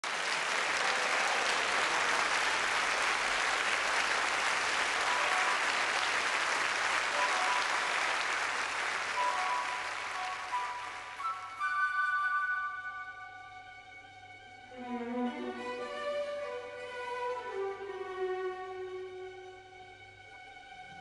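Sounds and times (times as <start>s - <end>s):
audience applauding: 0.0s - 12.8s
soft instrumental music: 7.1s - 8.4s, 9.0s - 21.0s.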